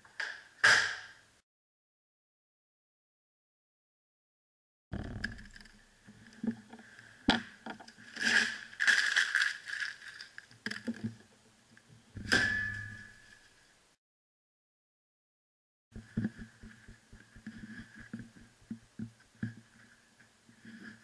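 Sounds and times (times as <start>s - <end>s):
paper being crumpled: 8.1s - 10.5s.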